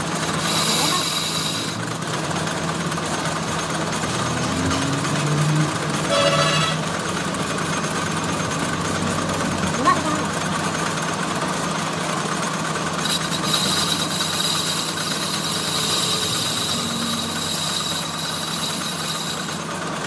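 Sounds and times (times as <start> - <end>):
high cutting whine with hiss: 0.0 - 1.8, 13.0 - 19.6
lathe motor hum: 0.0 - 20.0.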